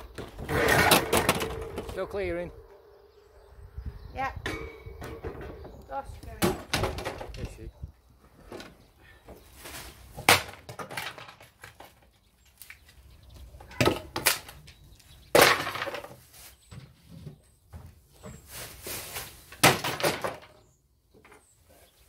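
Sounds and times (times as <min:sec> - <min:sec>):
wooden drawers smashing on slabs: 0:10.2 - 0:11.8, 0:15.3 - 0:16.2, 0:19.6 - 0:20.6.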